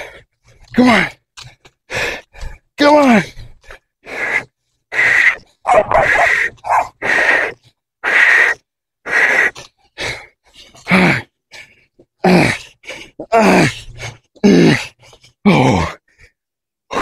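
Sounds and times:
man breathing hard: 0.0 - 0.8, 1.4 - 17.0
man groaning: 5.7 - 6.6, 12.2 - 12.6, 13.2 - 13.8, 14.4 - 16.0.

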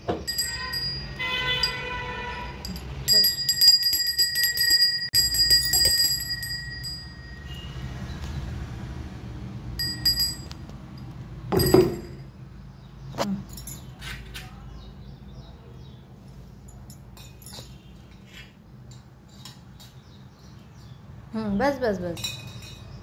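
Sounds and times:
small hand bell ringing: 0.2 - 7.9, 9.8 - 12.3.

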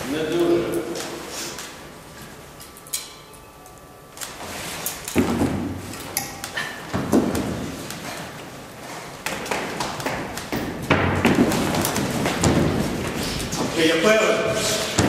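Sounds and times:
footsteps down a staircase: 4.4 - 13.9.

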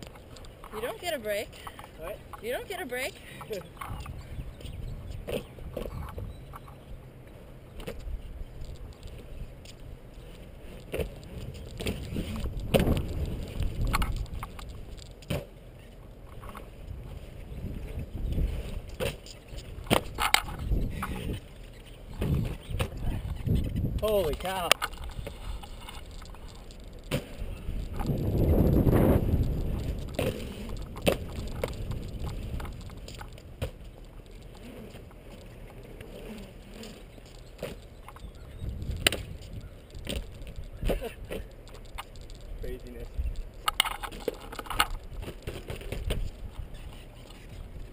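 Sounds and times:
board rolling over concrete: 0.0 - 47.9.

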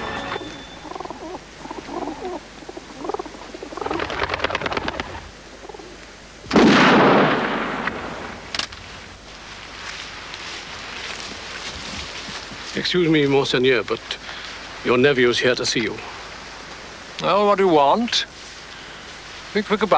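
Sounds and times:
pigeons fluttering: 0.9 - 6.0
flurry of wingbeats: 3.0 - 5.3
loud gunshot: 6.5 - 8.5.

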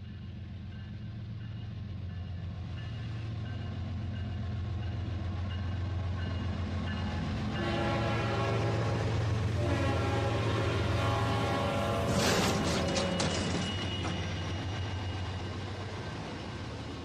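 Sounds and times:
train rumbling: 0.0 - 17.0
train horn: 7.5 - 13.6.

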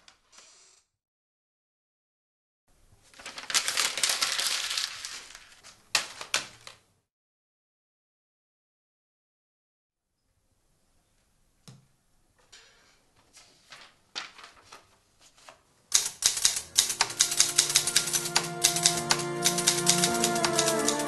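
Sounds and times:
paper rustling: 3.0 - 6.9, 13.2 - 21.0
typewriter keys striking: 15.9 - 21.0
music: 16.6 - 21.0.

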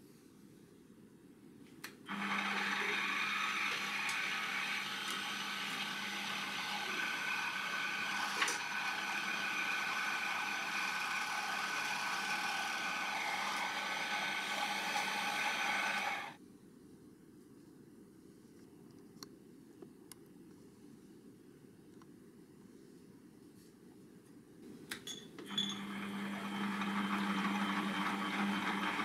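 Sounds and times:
lathe motor humming and whining: 2.1 - 16.4, 25.5 - 29.0.

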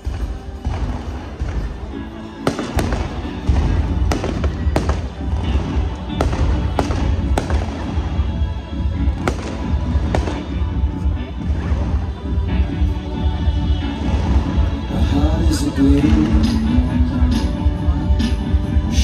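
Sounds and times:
deep continuous rumble: 0.0 - 19.0
music playing: 0.0 - 19.0.

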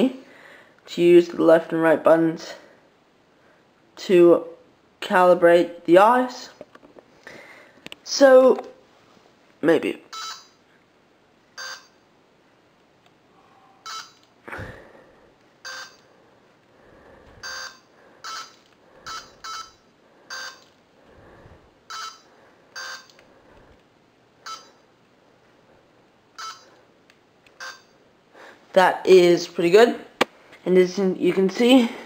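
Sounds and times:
short electronic beeps: 15.6 - 16.0, 17.4 - 20.7, 21.9 - 23.2, 24.4 - 24.8, 26.4 - 26.7, 27.6 - 28.0.

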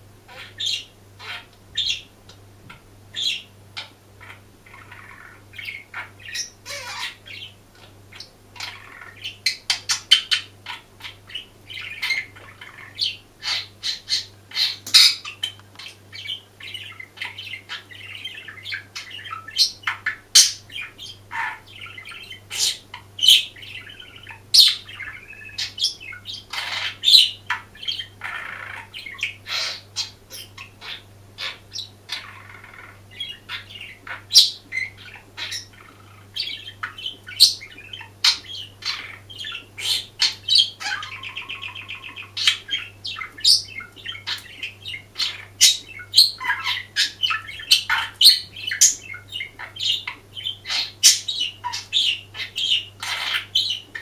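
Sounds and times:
faint low hum: 0.0 - 54.0
budgerigar warbling: 0.3 - 2.1, 3.1 - 54.0.

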